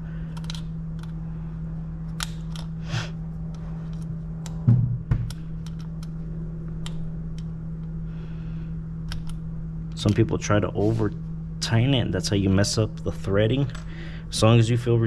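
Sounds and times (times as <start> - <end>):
low hum: 0.0 - 15.0
dull knock: 4.7 - 5.3.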